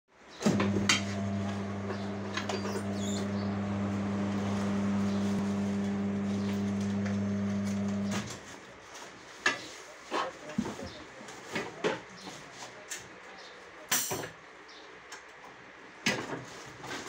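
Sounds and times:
electric motor humming: 0:00.5 - 0:08.3.

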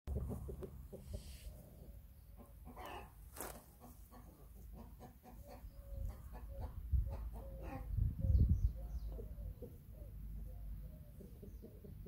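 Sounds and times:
chickens clucking: 0:00.1 - 0:12.0.

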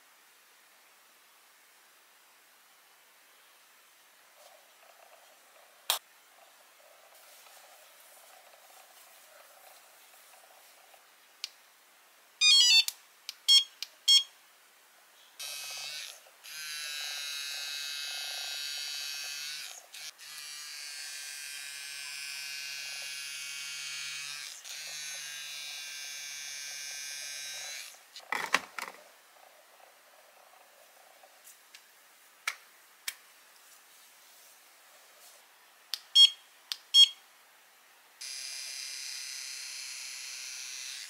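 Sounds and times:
steady electric buzz: 0:15.4 - 0:28.1, 0:38.2 - 0:41.0.

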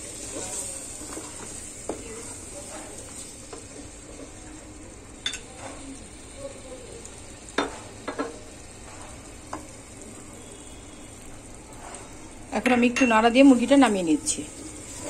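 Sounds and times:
spatula stirring thick curry: 0:00.0 - 0:04.4, 0:14.2 - 0:15.0
curry sizzling: 0:00.0 - 0:15.0.

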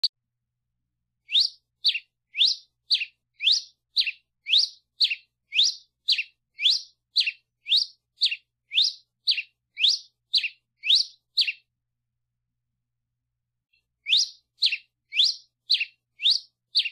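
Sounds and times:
finch singing high clear notes: 0:01.3 - 0:11.6, 0:14.1 - 0:16.9.

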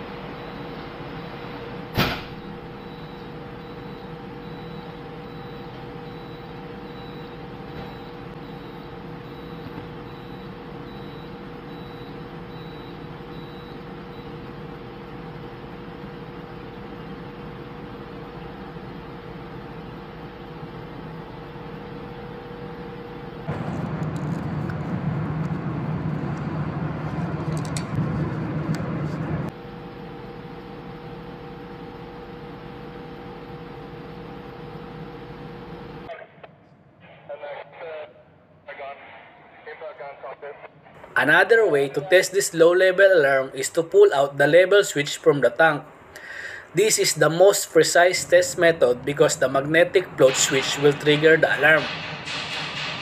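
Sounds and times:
machinery hum: 0:00.0 - 0:53.0
high alarm beeps: 0:02.3 - 0:14.4.

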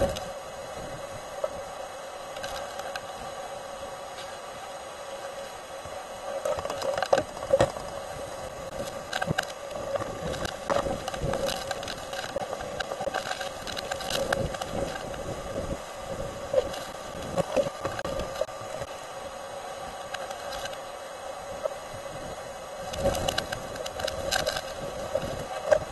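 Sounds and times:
strong wind against vehicle: 0:13.5 - 0:18.9, 0:21.8 - 0:25.9.

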